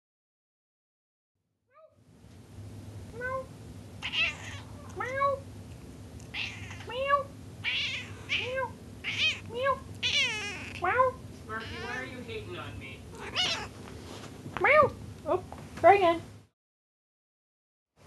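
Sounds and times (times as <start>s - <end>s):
cat meowing: 3.2s - 5.4s, 6.2s - 12.1s, 13.1s - 13.8s.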